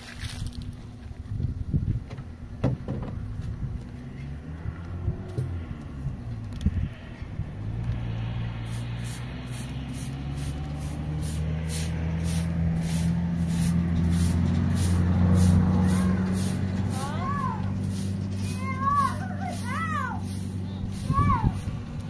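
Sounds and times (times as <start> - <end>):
low motor drone: 3.3 - 22.0
broom sweeping concrete: 8.0 - 22.0.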